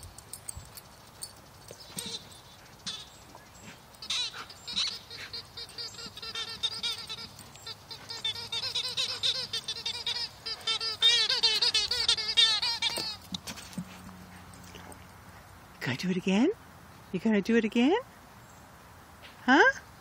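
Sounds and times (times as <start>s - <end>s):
dog chomping squeaky toy: 4.0s - 13.3s.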